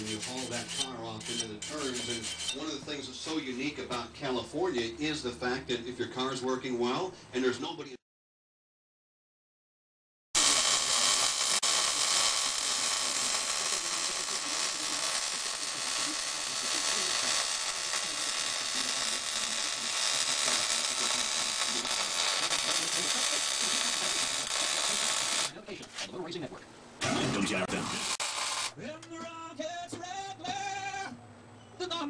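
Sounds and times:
welder arc crackling sizzle: 0:10.4 - 0:25.6, 0:27.4 - 0:28.8.

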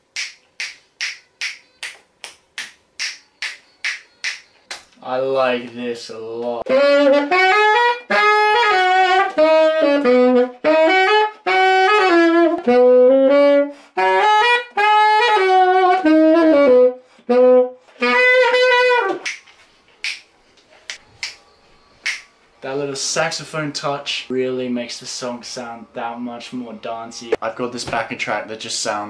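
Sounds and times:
saxophone melody: 0:06.6 - 0:19.4.

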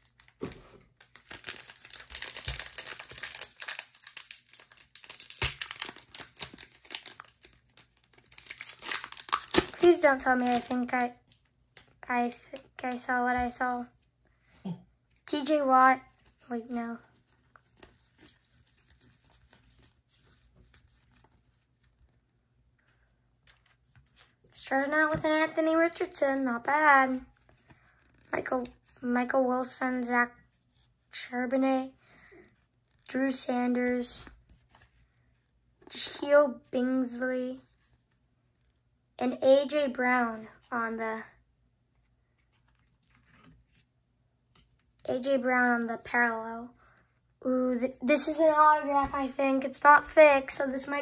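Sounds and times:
foil wrappers crinkling: 0:00.0 - 0:11.1
trading cards shuffling: 0:00.1 - 0:11.1.

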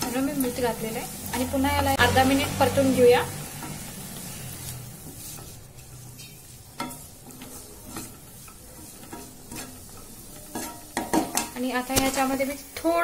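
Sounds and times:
spatula scraping a pan: 0:00.0 - 0:13.0
vegetables sizzling in oil: 0:00.0 - 0:13.0.

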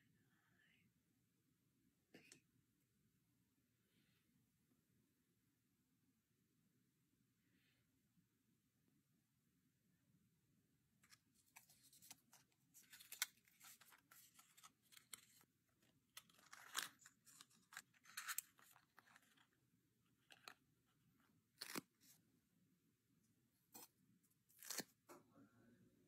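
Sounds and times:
plastic and card packaging crinkling: 0:11.0 - 0:19.6, 0:20.2 - 0:20.6, 0:21.6 - 0:22.1, 0:24.5 - 0:25.0.

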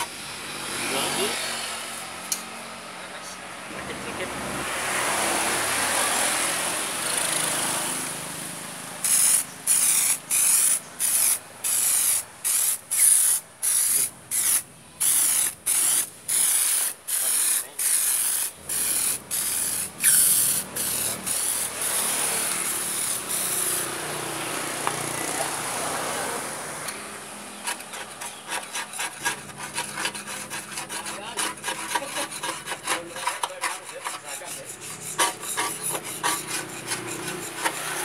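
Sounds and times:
aerosol can spraying: 0:09.0 - 0:24.1.

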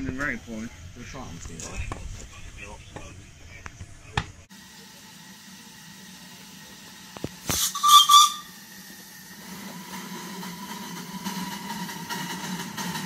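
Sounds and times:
hiss of steam: 0:04.5 - 0:13.0
steam locomotive running: 0:04.5 - 0:13.0
steam whistle blast: 0:07.5 - 0:08.7.

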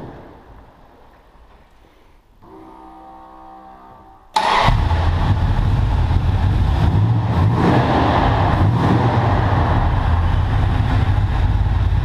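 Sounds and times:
car engine running: 0:04.4 - 0:12.0.

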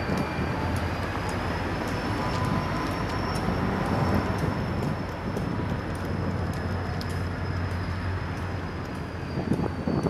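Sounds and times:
diesel locomotive engine rumbling: 0:00.0 - 0:10.0
wheels ticking on rails: 0:00.0 - 0:10.0.

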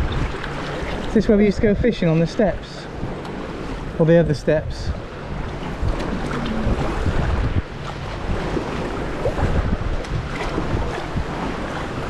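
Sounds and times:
water lapping and splashing: 0:00.0 - 0:12.0
wind rumbling on microphone: 0:00.0 - 0:12.0.

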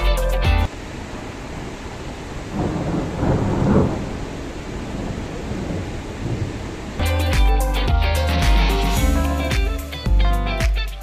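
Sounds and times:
steady rushing hiss: 0:00.1 - 0:11.0
thunder rumble: 0:01.2 - 0:07.0.

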